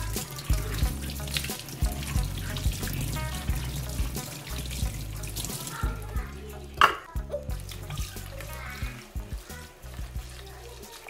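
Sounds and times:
background music with steady beat: 0:00.0 - 0:11.0
tap water running into sink: 0:00.0 - 0:11.0
hands rubbing corn cob: 0:07.9 - 0:11.0.

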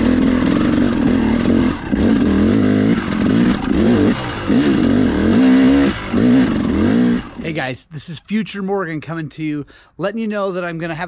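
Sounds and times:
dirt bike engine revving: 0:00.0 - 0:07.6.

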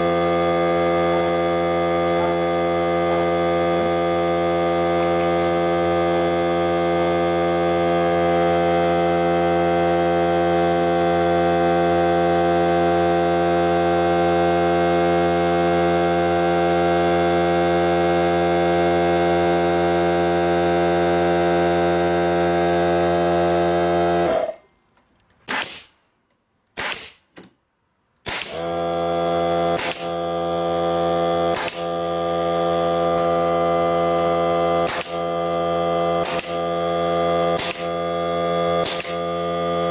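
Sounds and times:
air compressor motor humming: 0:00.0 - 0:24.6, 0:28.3 - 0:39.9
brad nailer firing: 0:23.8 - 0:24.6, 0:25.4 - 0:26.0, 0:26.7 - 0:27.5, 0:28.2 - 0:39.9.

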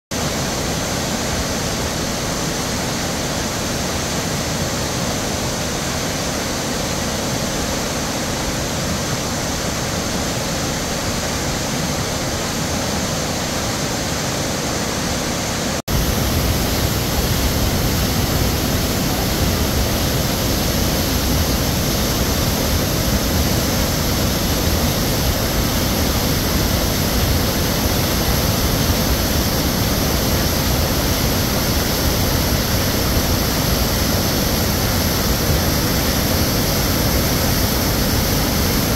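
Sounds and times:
waterfall roaring: 0:00.2 - 0:38.9.

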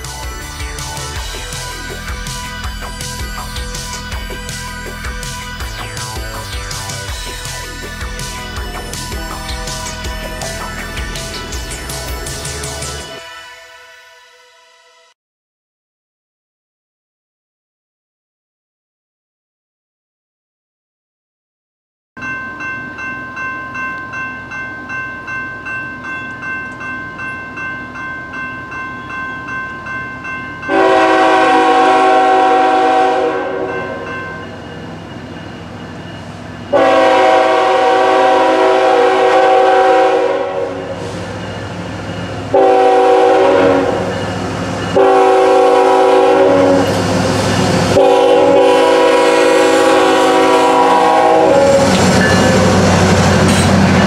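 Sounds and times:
train rumble: 0:00.0 - 0:13.3, 0:23.4 - 0:54.0
railroad crossing bell ringing: 0:00.0 - 0:14.5, 0:22.2 - 0:54.0
locomotive air horn blasts: 0:30.7 - 0:34.0, 0:36.7 - 0:41.2, 0:42.5 - 0:44.2, 0:45.0 - 0:47.0, 0:47.9 - 0:52.9.

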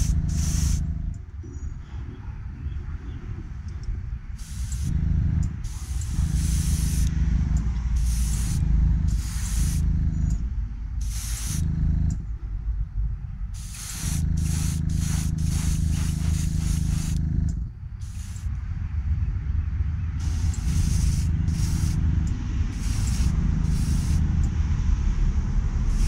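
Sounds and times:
airbrush spraying in hissing bursts: 0:00.0 - 0:00.9, 0:04.4 - 0:07.1, 0:08.0 - 0:09.9, 0:11.0 - 0:11.7, 0:13.6 - 0:17.3, 0:18.0 - 0:18.5, 0:20.2 - 0:22.1, 0:22.7 - 0:24.5
small compressor humming: 0:00.0 - 0:01.3, 0:04.3 - 0:12.4, 0:13.4 - 0:18.6, 0:20.2 - 0:24.6, 0:25.8 - 0:26.0.

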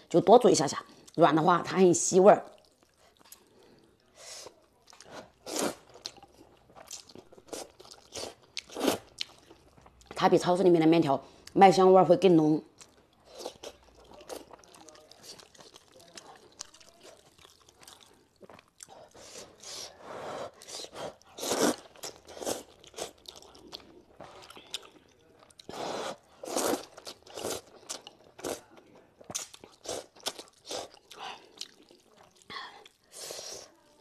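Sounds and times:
person chewing: 0:02.5 - 0:10.2, 0:12.8 - 0:19.9, 0:20.5 - 0:33.2
person slurping noodles: 0:19.1 - 0:22.7.

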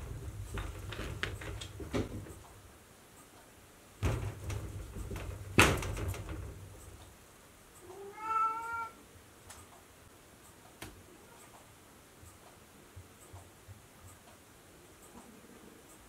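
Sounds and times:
wooden sliding door rattling: 0:00.0 - 0:02.4, 0:04.0 - 0:07.0
cat meowing: 0:07.8 - 0:09.0.

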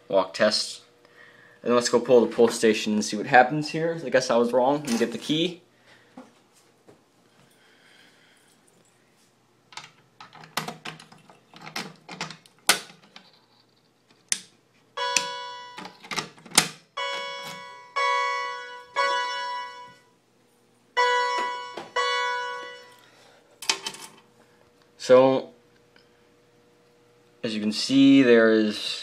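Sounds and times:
fire alarm chime: 0:15.0 - 0:16.0, 0:17.0 - 0:20.1, 0:21.0 - 0:23.1
alarm pull station clicks: 0:15.0 - 0:16.2, 0:21.0 - 0:23.0.

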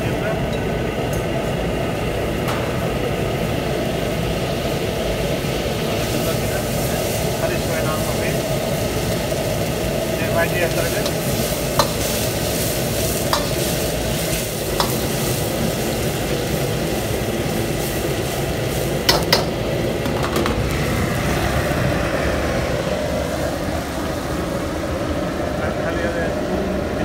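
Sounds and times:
butter sizzling in a wok: 0:04.5 - 0:21.9.

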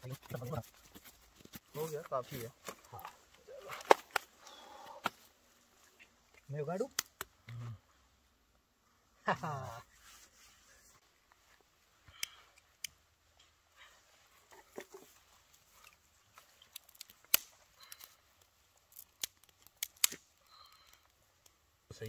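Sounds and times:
twigs snapping and crackling: 0:02.5 - 0:05.3, 0:06.2 - 0:07.6, 0:14.8 - 0:21.6.

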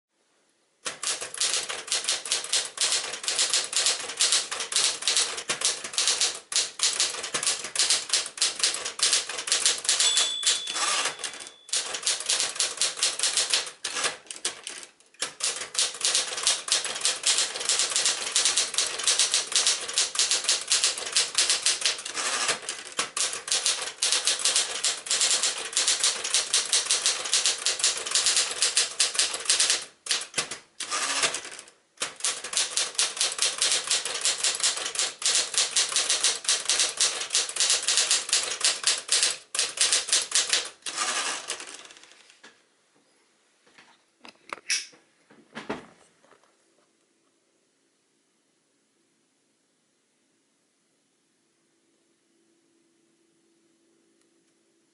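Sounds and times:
typewriter typebar clacks: 0:00.8 - 0:42.2
typewriter bell ringing: 0:08.7 - 0:14.0.

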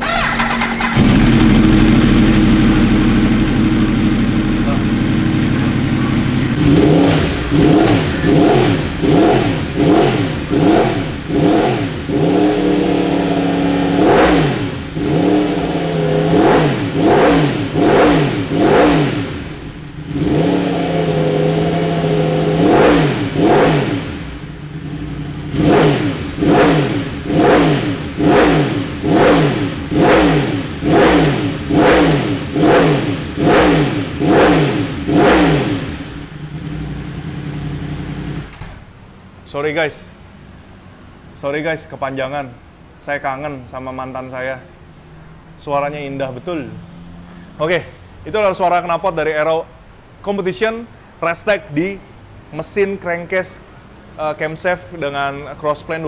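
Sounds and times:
motorcycle engine revving: 0:00.0 - 0:38.7.

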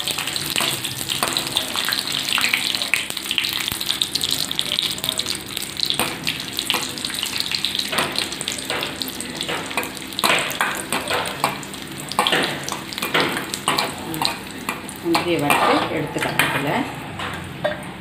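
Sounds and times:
nuts sizzling in oil: 0:00.0 - 0:17.0
steel ladle scraping a wok: 0:15.4 - 0:17.4.

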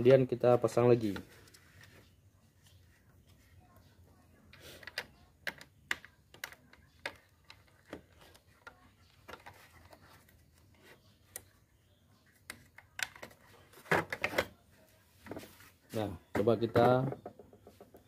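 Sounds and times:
plastic clicks and taps: 0:04.5 - 0:10.3.

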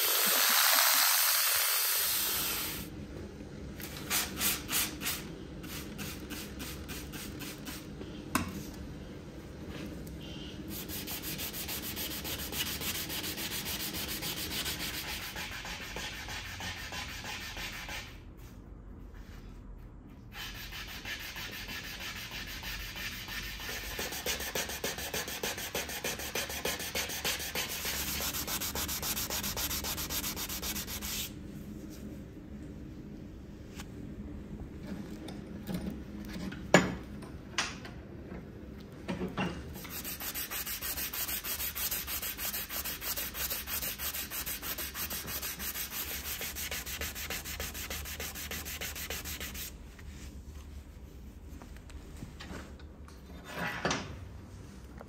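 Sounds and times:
knife blade being sanded: 0:10.7 - 0:18.0, 0:20.5 - 0:31.3, 0:39.8 - 0:49.7.

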